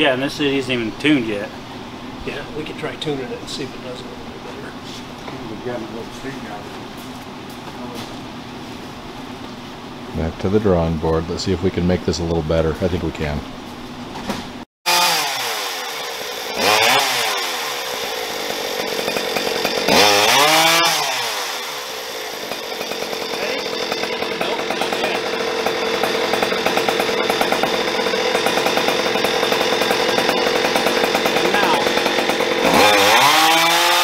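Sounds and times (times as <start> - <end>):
chainsaw engine revving: 14.9 - 34.0.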